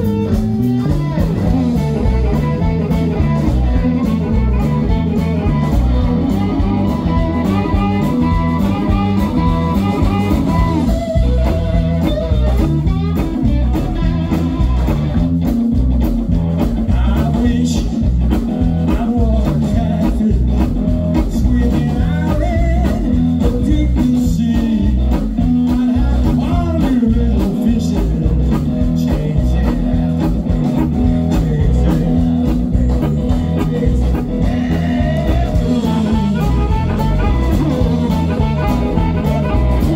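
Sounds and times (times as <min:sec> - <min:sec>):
harmonica holding long notes: 0:00.0 - 0:15.4, 0:32.2 - 0:39.9
bass guitar: 0:00.0 - 0:39.9
drums: 0:00.0 - 0:39.9
electric guitar: 0:00.0 - 0:39.9.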